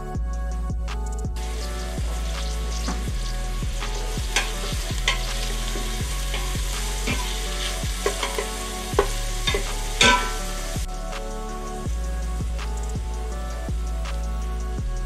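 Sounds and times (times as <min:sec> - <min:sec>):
onion sizzling: 0:01.4 - 0:14.3
wooden spoon scraping and knocking pot: 0:04.2 - 0:10.5.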